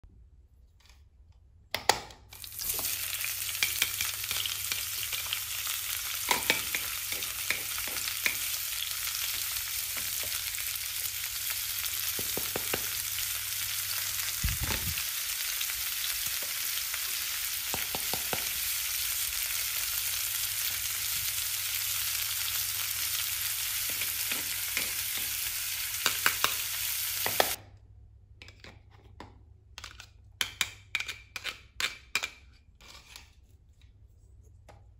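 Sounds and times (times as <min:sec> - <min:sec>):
toy stove sizzle hiss: 0:02.4 - 0:27.6.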